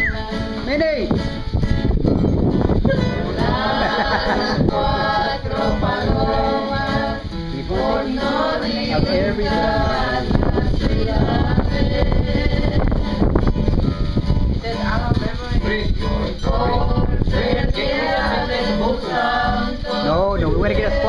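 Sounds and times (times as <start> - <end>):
group of people singing: 0.0 - 0.7, 2.9 - 13.4, 14.8 - 21.0
acoustic guitar: 0.0 - 21.0.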